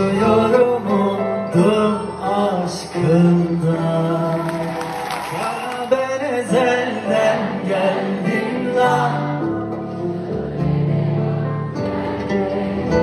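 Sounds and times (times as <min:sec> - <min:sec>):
man singing into microphone: 0:00.0 - 0:09.7.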